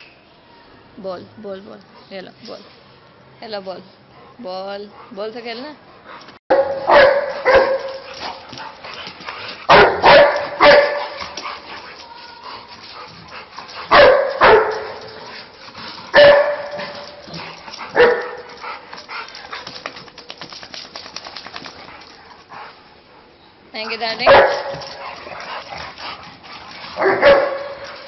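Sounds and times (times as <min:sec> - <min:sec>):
dog barking: 0:06.5 - 0:08.0, 0:09.7 - 0:11.2, 0:13.9 - 0:15.0, 0:16.1 - 0:17.1, 0:18.0 - 0:18.5, 0:24.2 - 0:24.9, 0:27.0 - 0:28.0.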